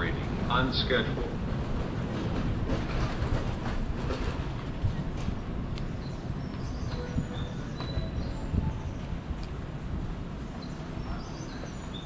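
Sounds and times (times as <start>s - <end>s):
train wagons rumbling: 0.0s - 12.0s
wheels clicking over rail joints: 1.1s - 8.3s.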